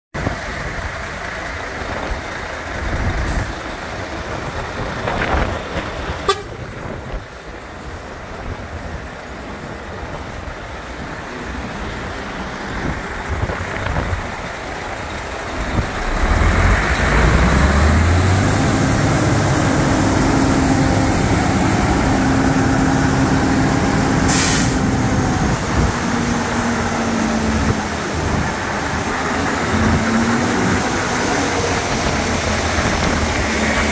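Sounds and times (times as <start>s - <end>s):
diesel truck engine running: 0.2s - 33.9s
air hiss: 24.2s - 24.9s.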